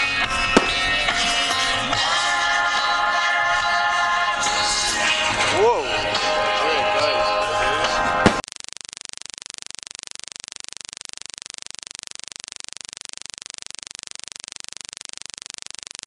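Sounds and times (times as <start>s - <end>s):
music with a voice: 5.0s - 8.2s.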